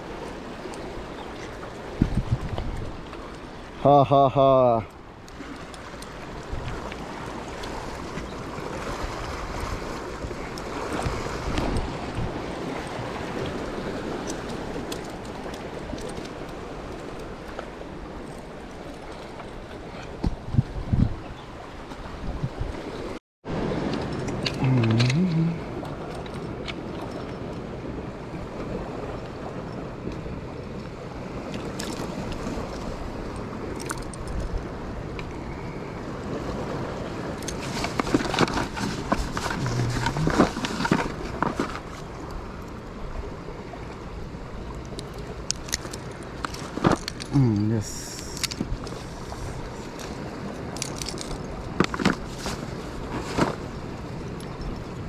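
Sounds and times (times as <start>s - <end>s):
sea washing against rocks: 0.0s - 35.3s, 36.0s - 55.0s
wind on the microphone: 0.8s - 3.2s, 6.1s - 18.9s, 19.8s - 26.2s, 26.8s - 41.7s.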